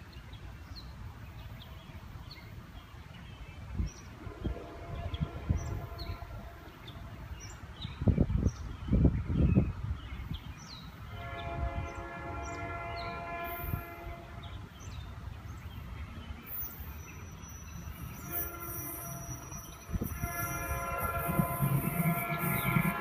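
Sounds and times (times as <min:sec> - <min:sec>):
faint birds chirping: 0:00.0 - 0:23.0
train air horn blasts: 0:04.2 - 0:07.3, 0:11.1 - 0:14.6, 0:18.0 - 0:23.0.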